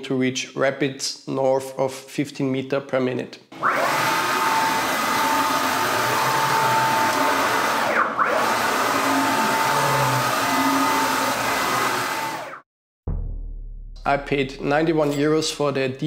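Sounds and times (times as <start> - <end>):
stepper motors whirring with whine: 3.6 - 12.6.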